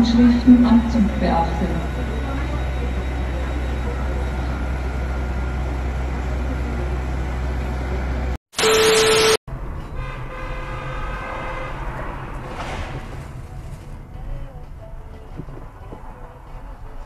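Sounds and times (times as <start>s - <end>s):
street traffic: 0.0s - 17.0s
steady beep: 0.1s - 5.8s, 8.6s - 9.4s
car horn: 8.6s - 12.9s.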